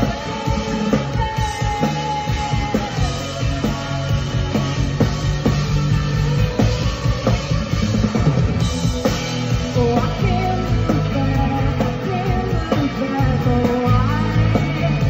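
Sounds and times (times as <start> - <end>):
woman singing into a microphone: 0.0 - 4.4, 9.7 - 15.0
drum kit: 0.0 - 15.0
electric guitars: 0.0 - 15.0.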